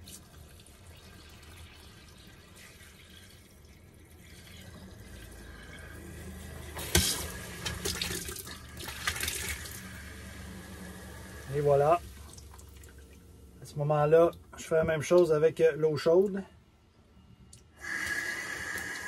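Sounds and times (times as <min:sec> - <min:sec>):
faucet water running into sink: 0:00.0 - 0:13.0, 0:17.8 - 0:19.0.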